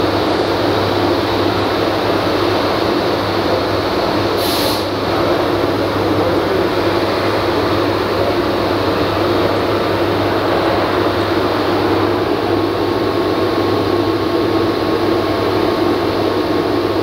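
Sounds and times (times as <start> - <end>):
vacuum hose hiss: 4.4 - 5.0.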